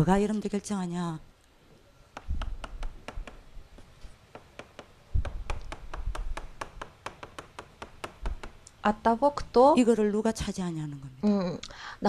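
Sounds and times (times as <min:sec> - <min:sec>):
chalk tapping on chalkboard: 0:02.1 - 0:08.6
dull low thumps: 0:02.2 - 0:03.8, 0:05.1 - 0:06.6.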